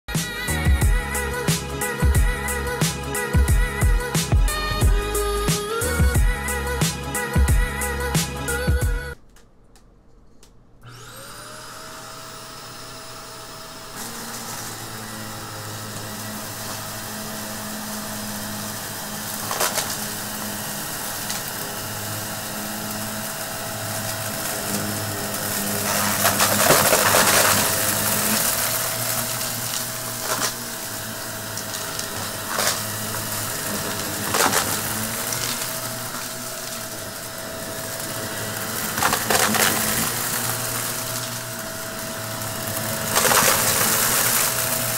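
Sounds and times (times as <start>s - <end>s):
vacuum cleaner motor whine: 10.8s - 44.9s
debris crackling in vacuum: 18.8s - 44.9s.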